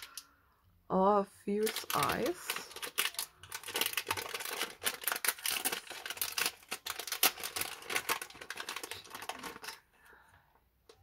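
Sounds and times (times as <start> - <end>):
paper bag crinkling: 1.6 - 9.9.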